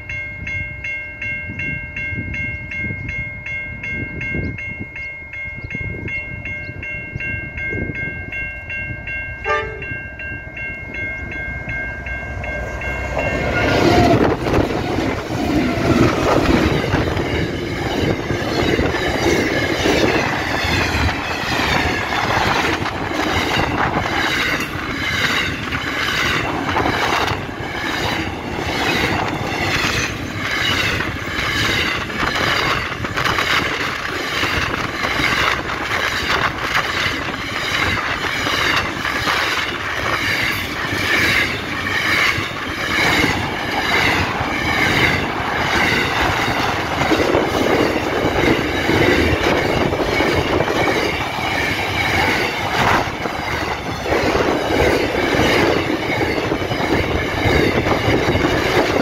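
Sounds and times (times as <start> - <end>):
level crossing bell ringing: 0.0 - 25.6
diesel locomotives passing: 0.0 - 59.0.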